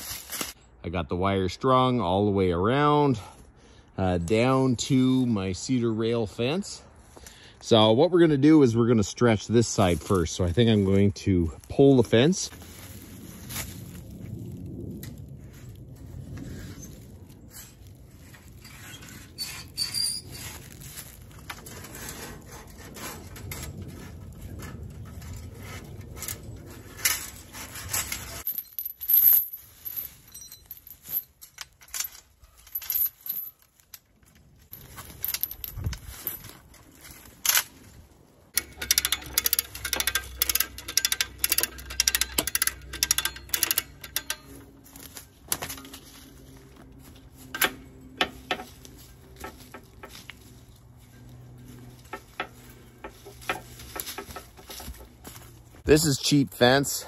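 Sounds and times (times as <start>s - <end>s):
wire fence clinking and rattling: 17.5s - 34.1s, 38.6s - 55.7s
sharp metallic clicks: 38.6s - 44.6s.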